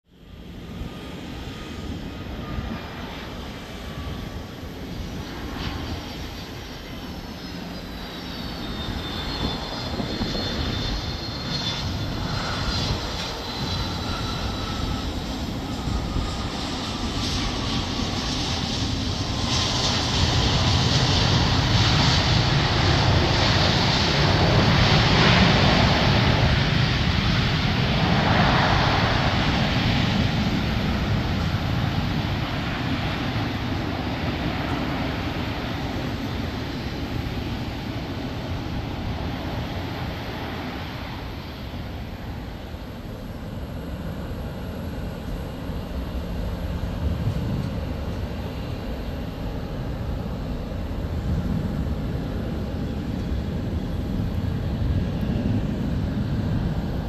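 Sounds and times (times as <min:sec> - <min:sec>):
jet engine whine: 0:00.0 - 0:57.0
jet engine roar: 0:00.1 - 0:57.0.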